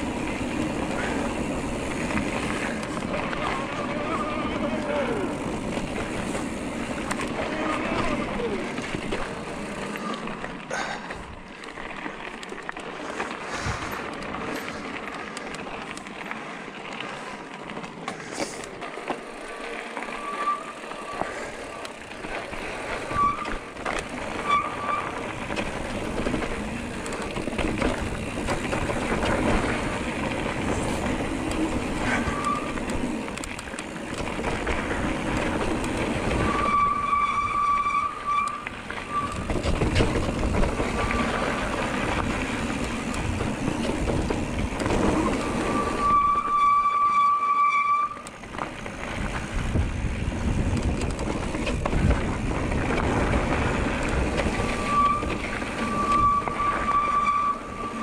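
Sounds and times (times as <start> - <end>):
bike rattling over ground: 0.0 - 58.0
high brake squeals: 20.0 - 21.8, 23.0 - 23.7, 24.4 - 25.2, 32.0 - 32.8, 36.3 - 39.8, 45.2 - 48.3, 54.7 - 58.0
tyre and wind rush: 21.1 - 46.8, 48.4 - 58.0.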